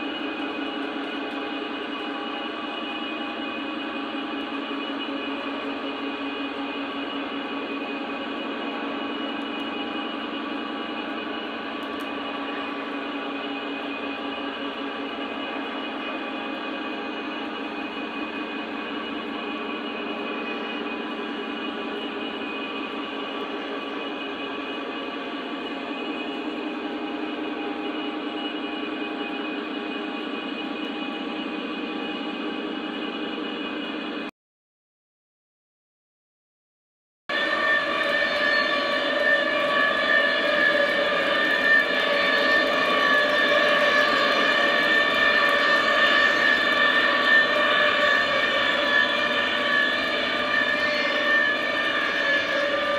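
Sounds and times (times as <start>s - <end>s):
model train motor whine: 0.0s - 34.2s, 37.3s - 52.9s
wheels rolling on rails: 37.3s - 52.9s.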